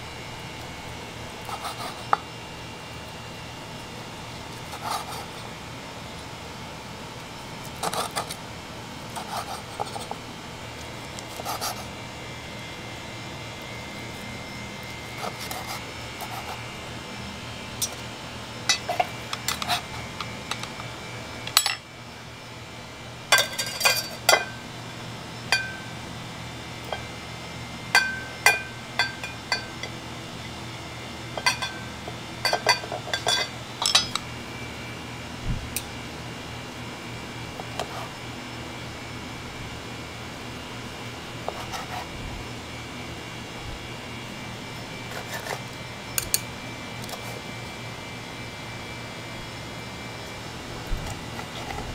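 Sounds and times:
blade clinking on metal skewer: 32.4 - 34.2.

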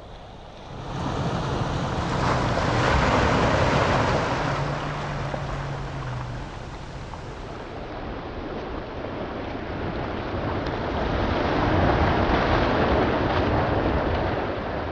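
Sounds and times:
surf breaking against rocks: 0.0 - 7.8.

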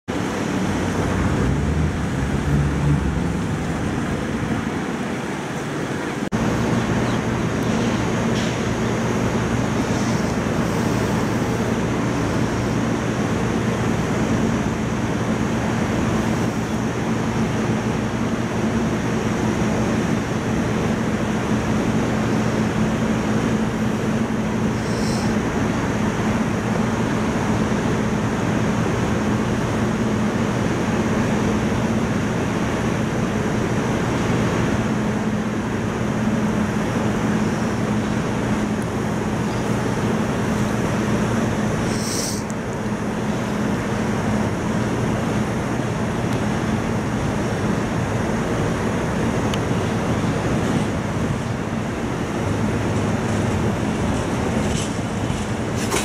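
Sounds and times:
road traffic: 0.0 - 56.0
background rush: 0.1 - 8.2
mechanical hum of standing trains: 0.1 - 56.0.

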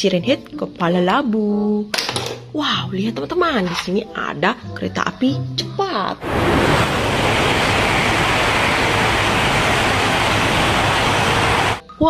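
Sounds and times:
train rushing past: 6.2 - 11.8.

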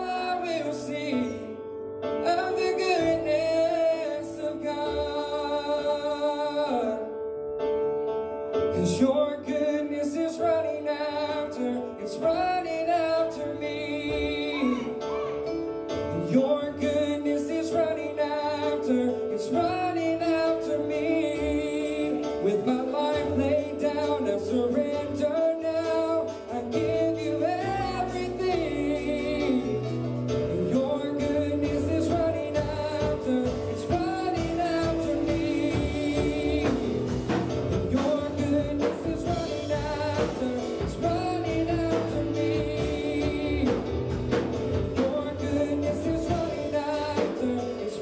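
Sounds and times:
live band playing: 8.6 - 48.0
voices singing: 13.6 - 15.4, 31.2 - 48.0.

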